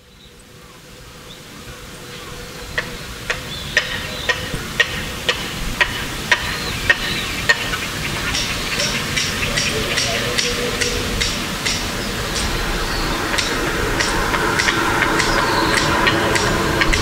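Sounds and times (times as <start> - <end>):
faint steady hum: 0.0 - 17.0
low rumble: 10.9 - 17.0.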